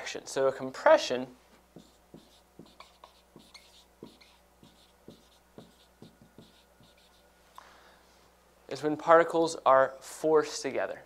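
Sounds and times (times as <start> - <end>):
marker writing on whiteboard: 1.7 - 7.3.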